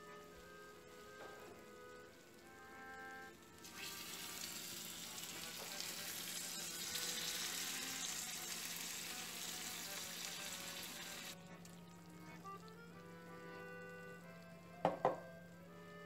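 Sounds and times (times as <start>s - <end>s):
water sizzling on hot pastry: 1.9s - 14.5s.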